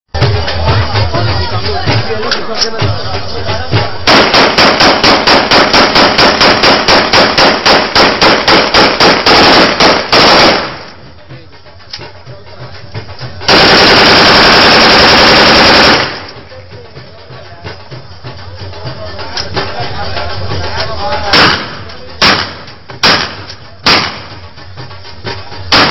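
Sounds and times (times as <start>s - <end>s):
rapid gunfire: 4.0s - 11.0s, 13.5s - 16.6s, 21.3s - 24.4s.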